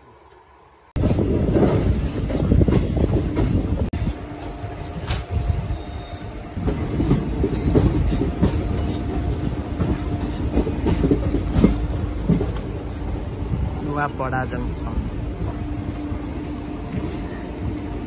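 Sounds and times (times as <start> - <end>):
train rumbling on track: 0.0 - 18.0
wheel clatter over rail joints: 6.5 - 18.0.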